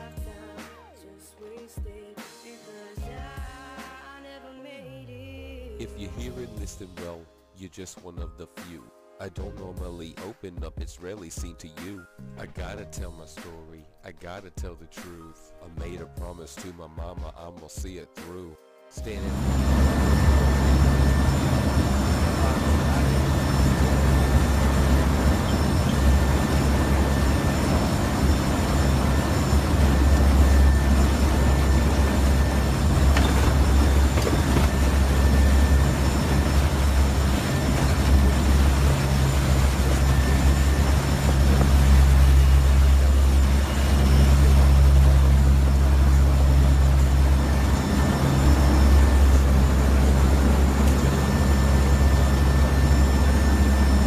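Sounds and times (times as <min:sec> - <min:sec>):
aircraft engines droning: 0:05.8 - 0:07.2, 0:19.0 - 0:54.0.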